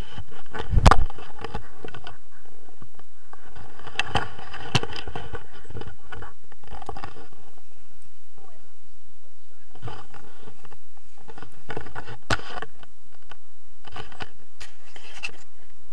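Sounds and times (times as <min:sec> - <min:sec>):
scraping and rustling in grass: 0:09.6 - 0:15.8.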